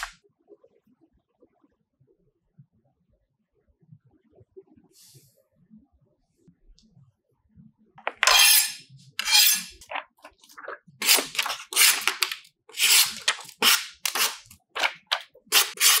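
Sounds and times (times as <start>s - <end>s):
wrapping paper crinkling: 9.8s - 16.0s.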